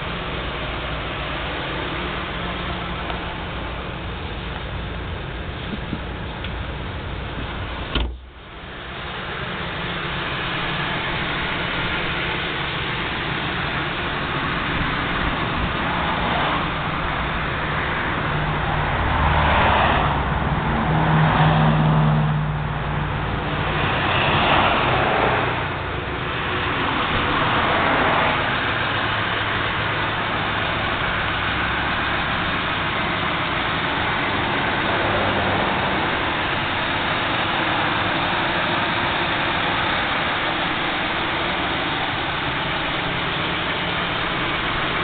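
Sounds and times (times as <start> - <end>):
rush of noise: 0.0 - 45.0
vehicle engine idling: 0.0 - 45.0
steady hiss: 25.5 - 45.0.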